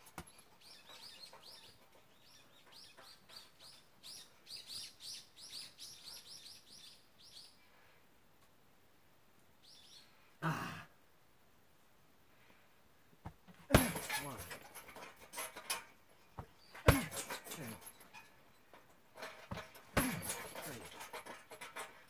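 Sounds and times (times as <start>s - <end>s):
bird chirping: 0.2s - 7.6s, 9.6s - 10.2s.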